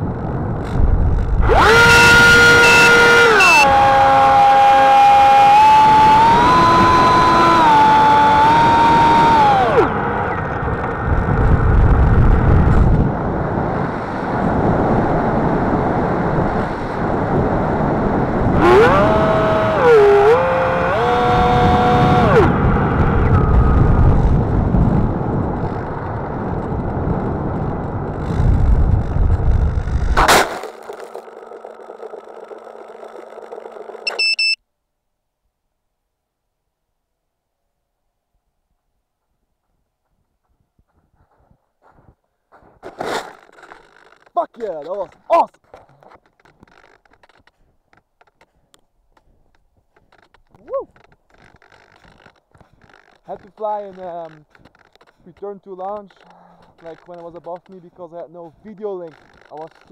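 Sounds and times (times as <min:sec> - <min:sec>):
wind rush on microphone: 0:00.0 - 0:30.2
drone motors whining: 0:00.2 - 0:11.9, 0:18.4 - 0:34.6.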